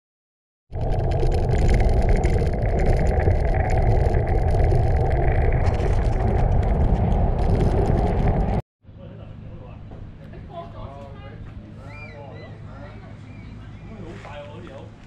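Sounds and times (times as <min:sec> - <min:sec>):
wind rumbling over microphone: 0:00.7 - 0:08.6.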